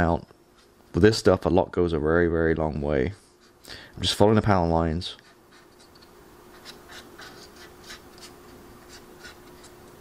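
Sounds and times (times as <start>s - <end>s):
faint steady hum: 0.0s - 10.0s
paintbrush scratching on plastic: 5.2s - 9.9s.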